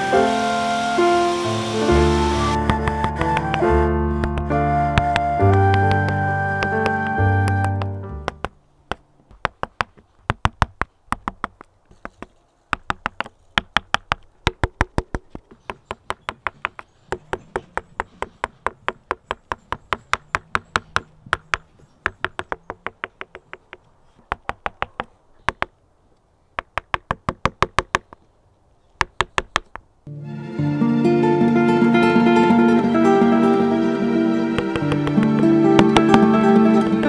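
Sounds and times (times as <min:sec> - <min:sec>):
mallet tapping carving gouge: 0:02.6 - 0:25.7, 0:26.6 - 0:28.2, 0:29.0 - 0:29.8, 0:34.5 - 0:37.0.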